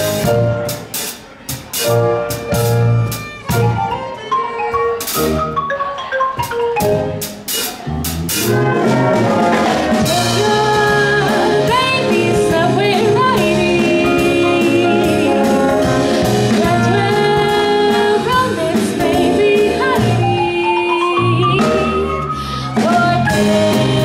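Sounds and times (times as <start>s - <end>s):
jazz band playing: 0.0s - 24.0s
woman singing: 10.0s - 24.0s.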